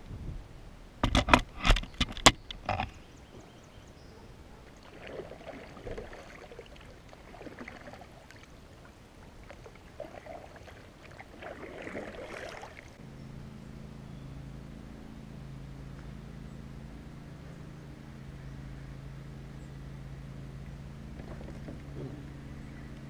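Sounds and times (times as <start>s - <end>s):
paddle splashing water: 4.5s - 13.0s.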